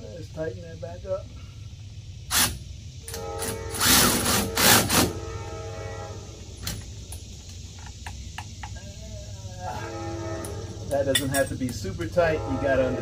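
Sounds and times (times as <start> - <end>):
power wrench whining and rattling: 2.3 - 5.2.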